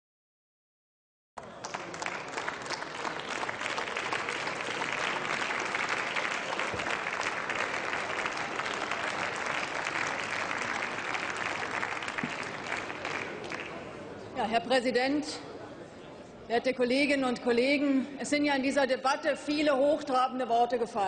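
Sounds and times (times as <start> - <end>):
crowd applauding: 1.4 - 14.3.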